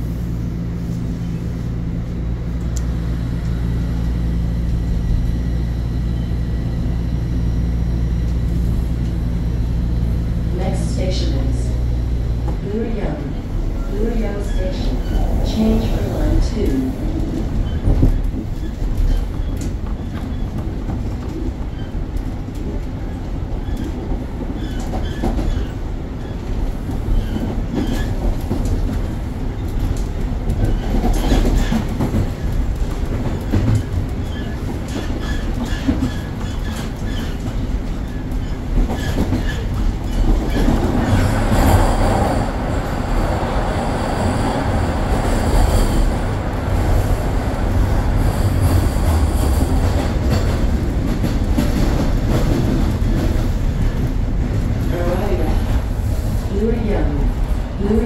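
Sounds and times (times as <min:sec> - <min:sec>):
subway train rumble: 0:00.0 - 0:58.0
wheels clacking over rail joints: 0:27.0 - 0:42.2.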